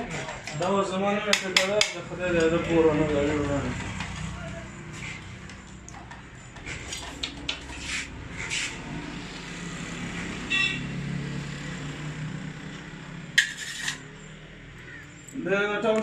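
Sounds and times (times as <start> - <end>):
metal parts clicking and scraping: 13.4 - 14.1.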